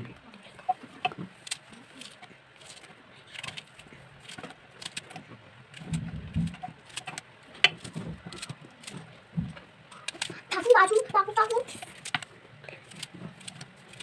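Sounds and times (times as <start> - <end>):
knife cutting onions: 10.0 - 14.0.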